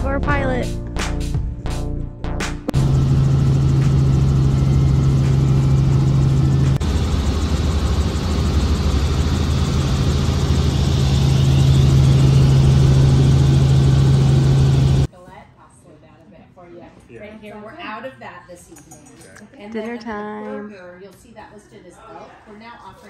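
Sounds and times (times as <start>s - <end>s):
helicopter engine and rotor drone: 2.7s - 15.1s.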